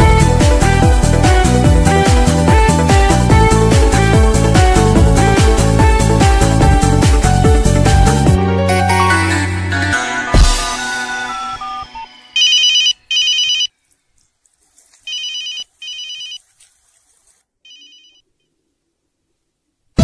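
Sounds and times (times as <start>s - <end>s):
background music: 0.0s - 13.2s
telephone ringtone trilling: 11.0s - 13.7s, 15.1s - 16.4s, 17.7s - 18.2s.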